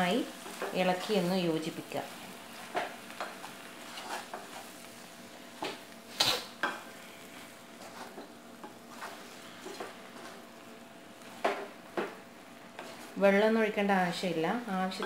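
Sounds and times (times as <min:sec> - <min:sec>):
faint sizzle: 0:00.0 - 0:15.0
wooden spatula scraping pot: 0:02.6 - 0:04.8, 0:07.8 - 0:10.4, 0:11.2 - 0:13.3.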